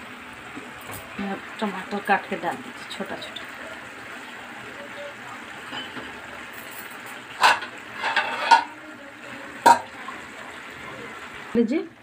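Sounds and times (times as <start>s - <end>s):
hot pan hissing: 0.0s - 11.8s
utensil clinking on metal pan: 5.7s - 8.8s.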